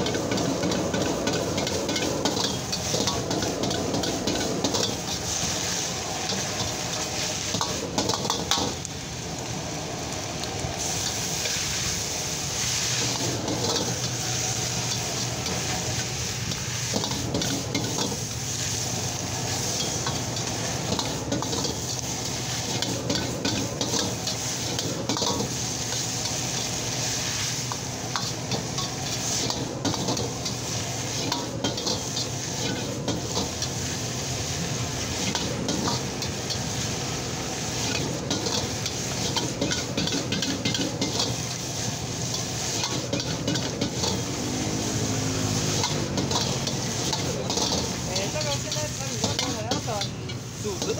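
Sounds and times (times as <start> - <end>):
cabbage sizzling: 0.0 - 50.9
metal ladle scraping a wok: 10.8 - 33.9, 35.0 - 50.9.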